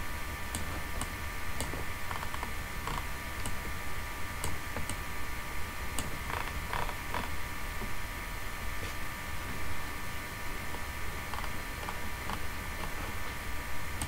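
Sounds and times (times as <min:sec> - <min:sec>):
faint steady whine: 0:00.0 - 0:14.0
computer mouse clicks: 0:00.5 - 0:03.6, 0:04.4 - 0:05.0.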